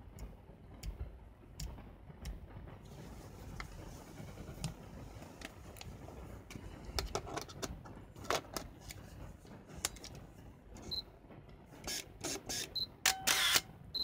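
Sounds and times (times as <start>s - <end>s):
camera shutter firing: 11.9s - 13.7s
motor winding film: 13.3s - 13.6s.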